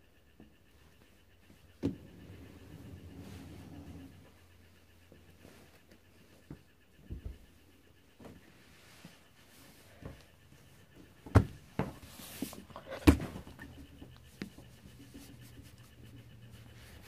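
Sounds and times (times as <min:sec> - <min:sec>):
faint low hum: 0:00.0 - 0:17.0
handling knocks and rubs: 0:08.2 - 0:17.0.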